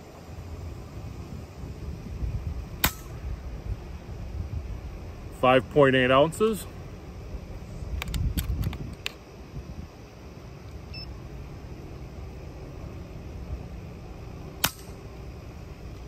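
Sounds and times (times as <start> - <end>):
low background noise: 0.0 - 16.0
light handling clicks: 8.0 - 9.2.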